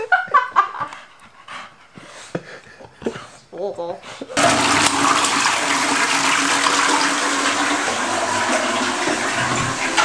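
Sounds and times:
toilet flushing: 4.4 - 10.0.

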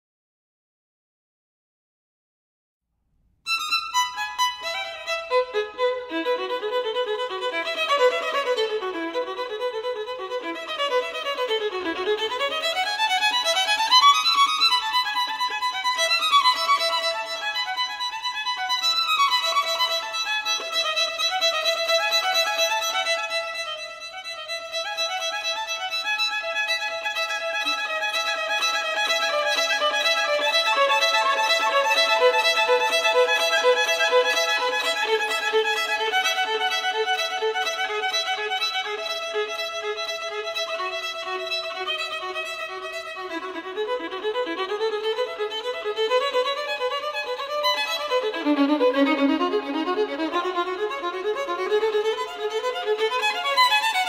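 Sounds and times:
violin sliding in pitch: 3.5 - 54.0.

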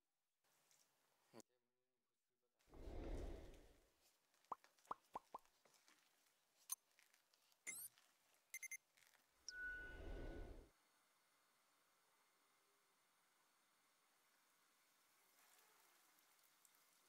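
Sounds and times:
quick plops: 4.5 - 5.5.

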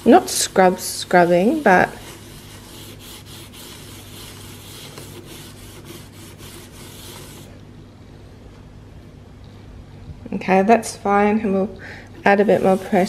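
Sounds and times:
sponge scrubbing plastic wicker: 0.0 - 7.6, 12.2 - 13.0.

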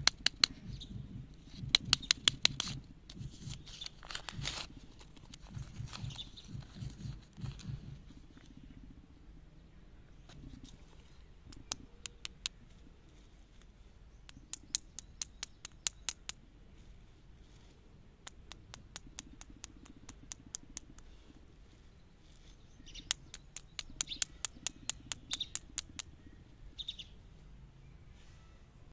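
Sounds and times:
lollipop sticks clicking and tapping: 0.0 - 8.0, 11.5 - 12.6, 14.2 - 16.4, 18.2 - 21.1, 22.9 - 26.2.

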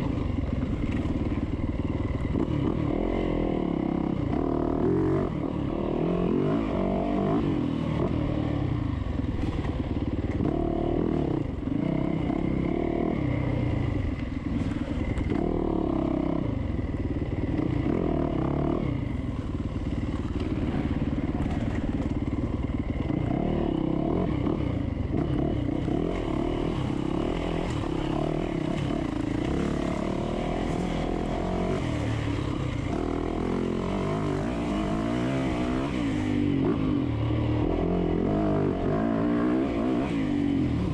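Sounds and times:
dirt bike engine revving: 22.9 - 40.9.

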